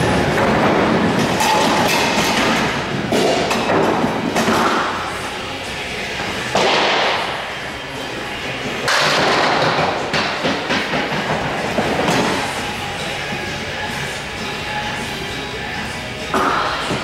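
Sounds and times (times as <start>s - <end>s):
bowling pins crashing: 0.0s - 5.1s, 8.8s - 12.8s.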